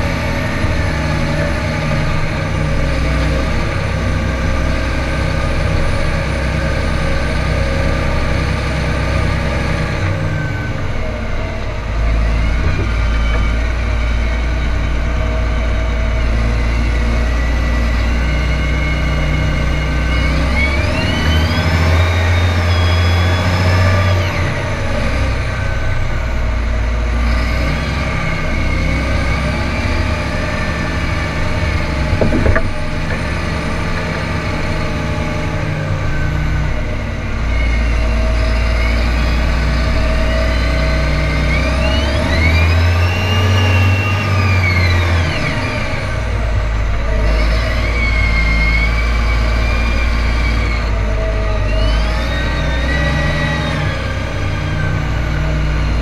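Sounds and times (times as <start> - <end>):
tractor diesel engine running: 0.0 - 56.0
sharp knock: 32.1 - 33.3.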